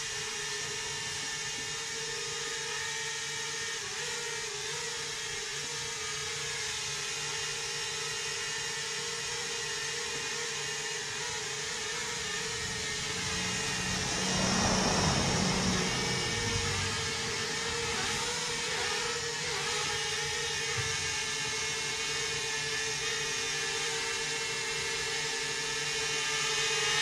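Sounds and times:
drone buzzing: 9.0 - 25.4
rush of prop wash: 10.0 - 22.0.

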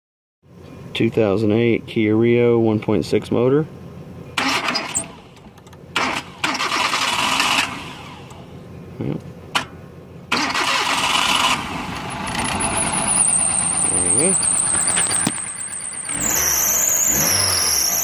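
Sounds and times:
car engine cranking and starting: 4.4 - 8.6, 9.3 - 18.0
high-pitched whine: 12.0 - 18.0.

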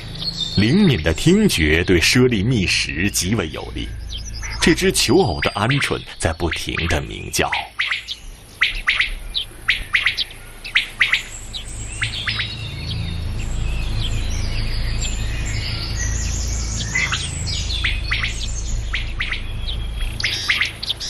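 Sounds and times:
low steady rumble: 0.0 - 21.0
songbirds twittering: 0.0 - 21.0
quail calling: 0.6 - 12.6, 16.8 - 21.0.

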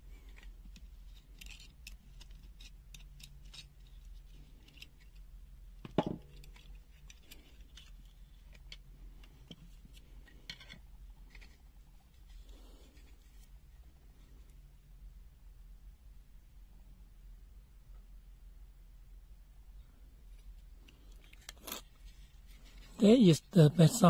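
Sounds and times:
loud plastic knock: 5.8 - 6.3.

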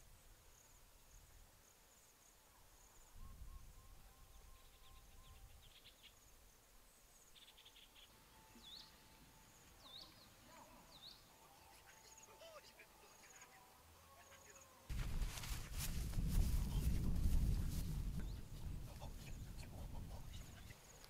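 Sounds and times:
insects chirping in trills: 0.0 - 21.0
faint bird calls: 2.3 - 14.8
low wind rumble: 14.9 - 21.0.

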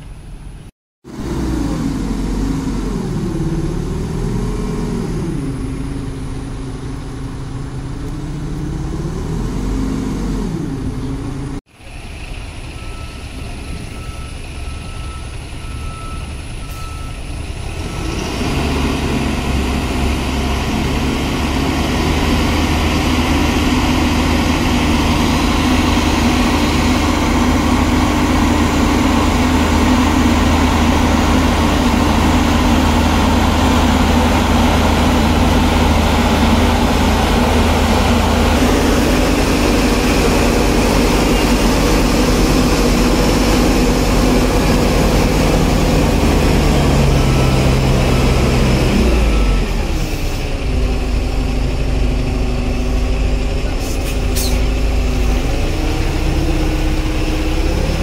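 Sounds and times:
diesel crane engine running: 0.0 - 58.0.

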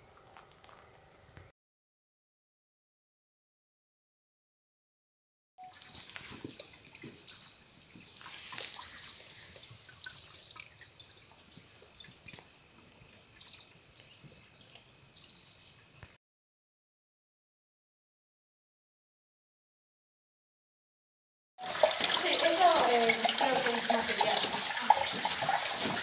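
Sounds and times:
bird chirps: 5.6 - 16.2
high-pitched insect buzz: 5.6 - 16.2
footsteps on stones: 6.0 - 9.1, 25.0 - 26.0.

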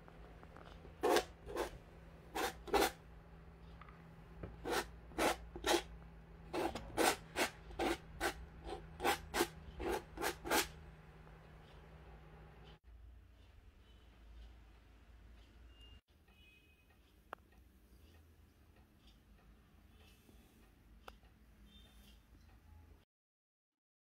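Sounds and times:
palette knife scraping paint on canvas: 0.9 - 3.0, 4.5 - 5.9, 6.5 - 10.8.

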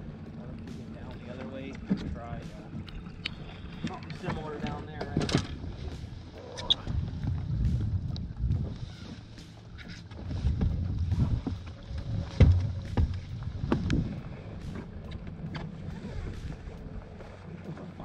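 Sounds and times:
wind rumbling on microphone: 0.0 - 18.0
knocks and clunks: 12.2 - 14.0.

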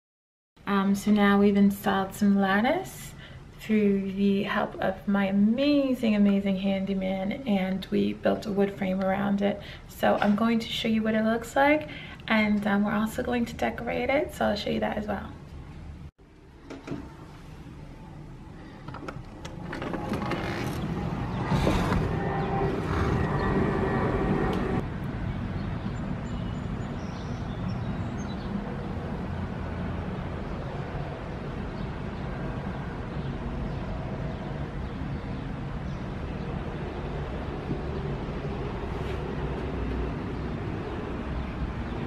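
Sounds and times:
road traffic hum: 15.5 - 42.0
wind on microphone: 20.2 - 24.9.

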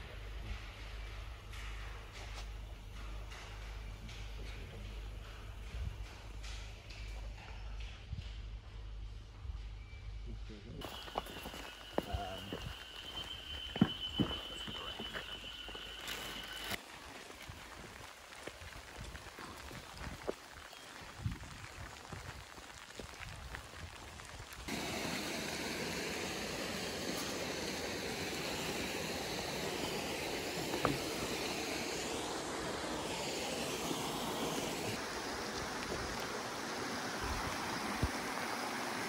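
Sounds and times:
rain hissing: 10.8 - 39.0.

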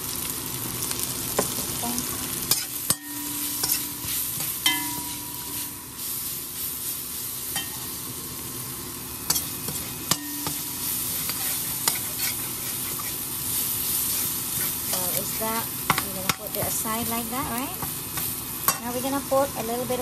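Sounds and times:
food sizzling in a pan: 0.0 - 20.0
metal spoon scraping a pan: 2.5 - 5.8, 9.3 - 18.9
pan ringing: 2.9 - 3.9, 4.6 - 5.8.

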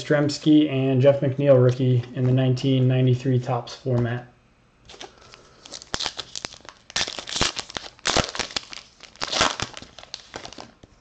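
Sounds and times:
wrapper tearing and crinkling: 4.9 - 10.8.

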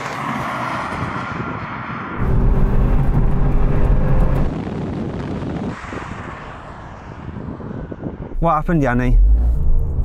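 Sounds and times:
heavy low rumble: 2.2 - 10.0.

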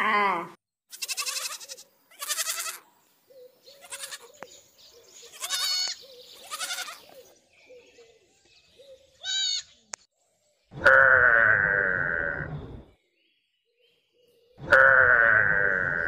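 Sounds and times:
short wavering animal cries: 0.0 - 2.8, 3.8 - 4.3, 5.3 - 7.0.

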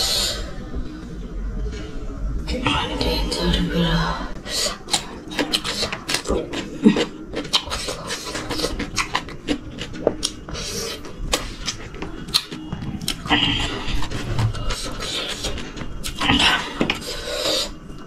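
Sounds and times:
person chewing: 4.5 - 17.8.

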